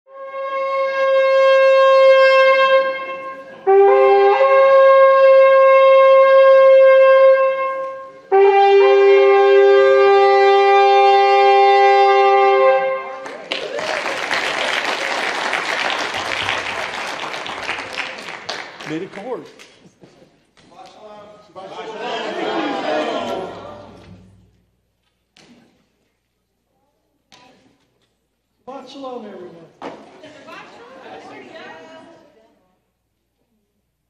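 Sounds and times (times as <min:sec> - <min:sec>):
shofar blasts: 0:00.1 - 0:13.4
congregation applause: 0:13.1 - 0:20.0.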